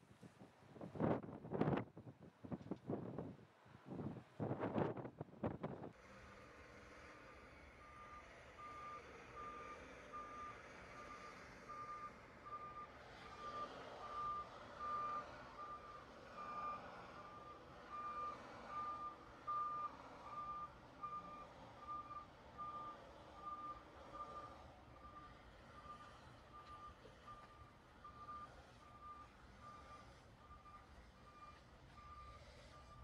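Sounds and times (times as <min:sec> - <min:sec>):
vehicle engines moving: 0:05.9 - 0:33.0
vehicle backup alarm beeping: 0:07.7 - 0:33.0.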